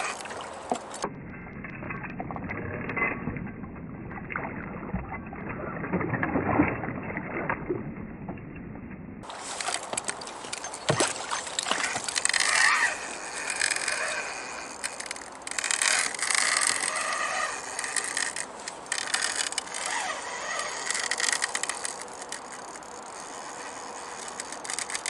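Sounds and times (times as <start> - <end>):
fishing reel clicking: 11.6 - 25.0.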